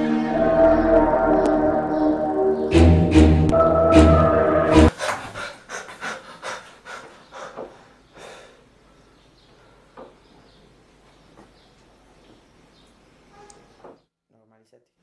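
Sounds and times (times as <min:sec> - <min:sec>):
person panting: 0:04.9 - 0:08.7.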